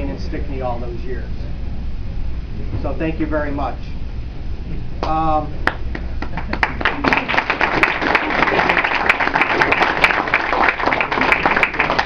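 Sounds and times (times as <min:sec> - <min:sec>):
audience applauding: 0:05.6 - 0:12.0.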